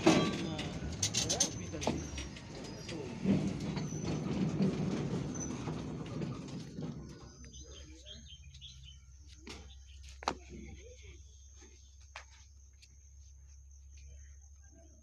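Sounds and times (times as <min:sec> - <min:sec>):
small birds chirping: 0:06.3 - 0:15.0.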